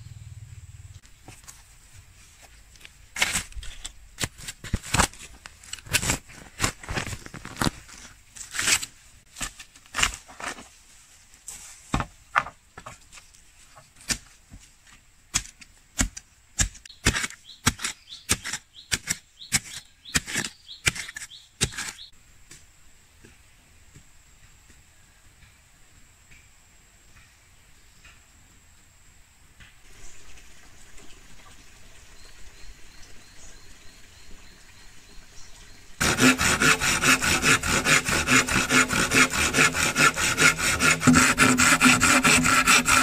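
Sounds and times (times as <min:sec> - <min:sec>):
digging tool striking stony soil: 0:03.1 - 0:07.8, 0:14.0 - 0:14.4, 0:15.3 - 0:22.1.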